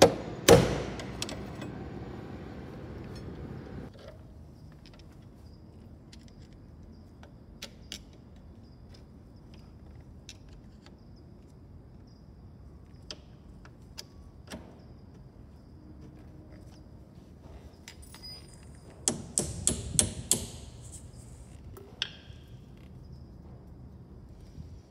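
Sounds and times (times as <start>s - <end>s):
faint steady hum: 0.0s - 3.9s.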